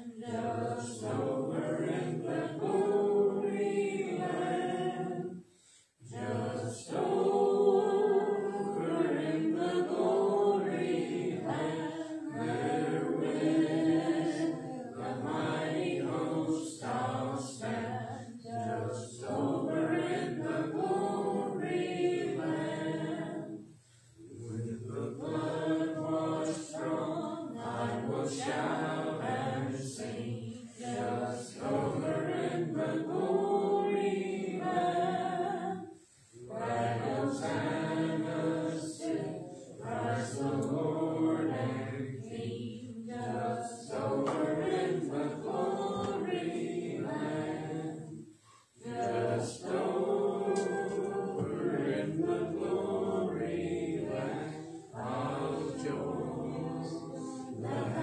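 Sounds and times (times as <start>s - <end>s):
congregation singing a hymn: 0.0s - 58.0s.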